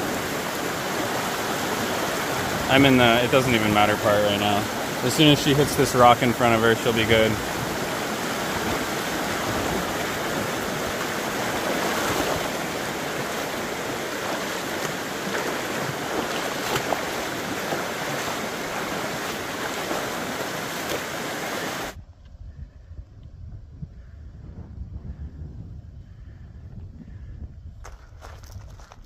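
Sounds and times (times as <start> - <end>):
stream rushing over stones: 0.0 - 22.0.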